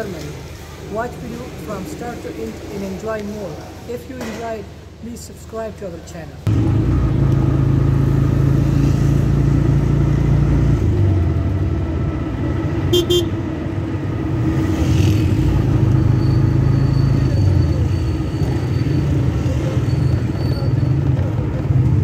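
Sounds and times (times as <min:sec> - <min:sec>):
vehicle engine running: 0:06.5 - 0:13.4
horn toots: 0:12.9 - 0:13.4.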